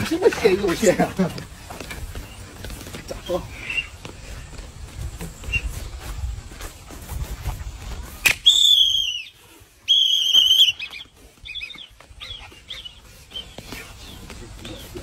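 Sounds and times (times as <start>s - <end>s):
sharp snap: 8.2s - 8.5s
whistle blasts: 8.2s - 11.0s.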